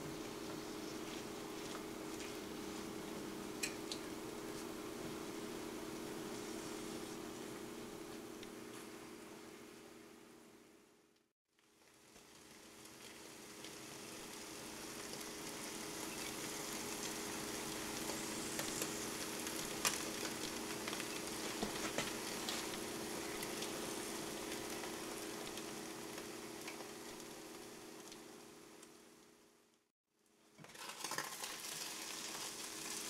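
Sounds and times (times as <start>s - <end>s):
eggs sizzling in a pan: 11.6s - 29.6s, 30.3s - 33.0s.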